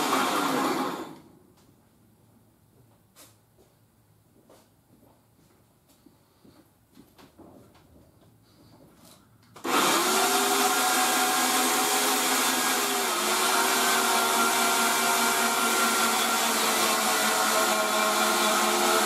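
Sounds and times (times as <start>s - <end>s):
electric winch motor whining: 9.6s - 19.0s.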